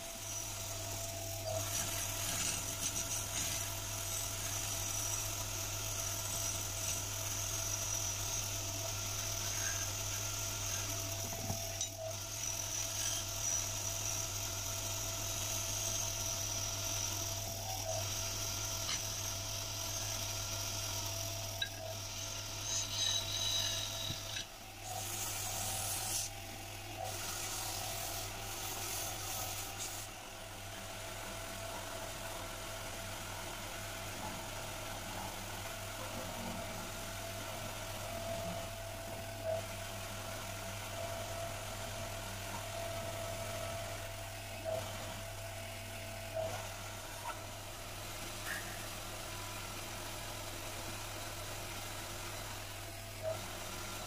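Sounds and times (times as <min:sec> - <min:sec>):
sanding hiss on spinning wood: 0:00.0 - 0:26.4, 0:27.1 - 0:30.1
wood lathe humming: 0:00.0 - 0:30.1.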